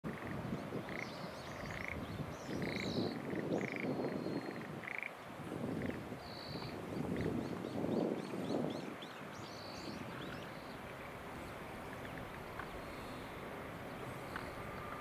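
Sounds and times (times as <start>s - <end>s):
frogs croaking: 0.1s - 7.6s, 9.6s - 15.0s
birds chirping and whistling: 2.4s - 4.6s
low uneven rushing noise: 9.2s - 15.0s.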